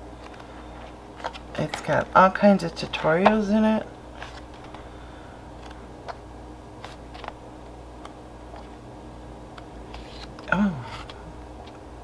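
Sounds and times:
low steady hum: 0.0 - 12.0
magazine pages turning: 0.2 - 2.0, 4.1 - 4.9, 6.8 - 7.4, 9.8 - 11.8.

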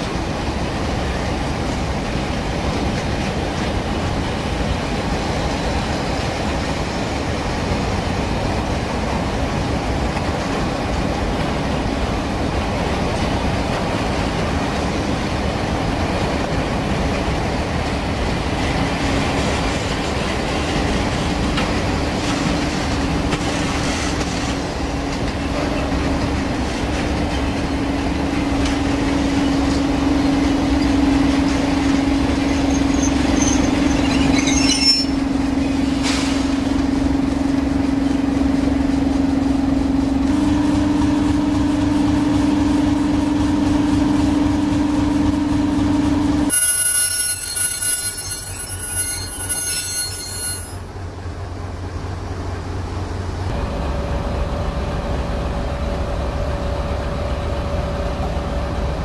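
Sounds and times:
diesel locomotive engine drone: 0.0 - 59.0
electric locomotive whine: 0.0 - 59.0
wheels squealing on rail: 21.9 - 36.9, 46.5 - 51.0.

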